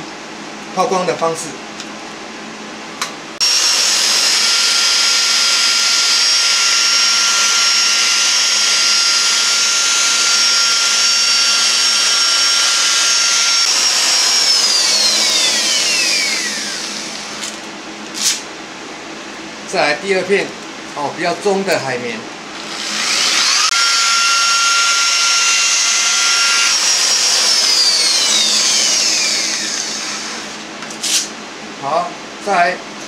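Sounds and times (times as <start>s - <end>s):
electric polisher whining: 3.4s - 17.6s, 22.6s - 30.6s.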